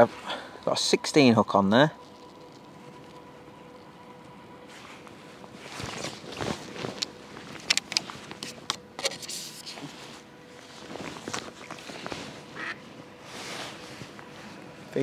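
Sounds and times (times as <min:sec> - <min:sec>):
clothing rustle: 0:04.6 - 0:15.0.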